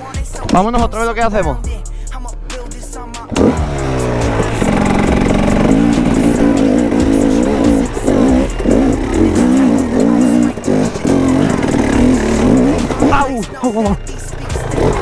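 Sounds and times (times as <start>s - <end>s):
motorcycle engine revving: 3.0s - 15.0s.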